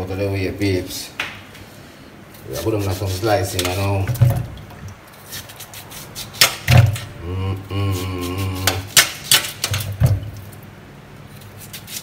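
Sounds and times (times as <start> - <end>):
man humming: 7.1 - 8.9.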